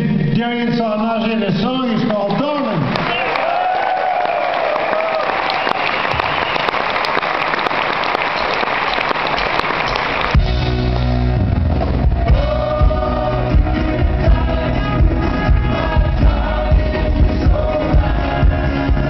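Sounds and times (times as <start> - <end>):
audience applauding: 2.2 - 19.0
live band playing pop song: 10.3 - 19.0
person singing: 12.3 - 19.0.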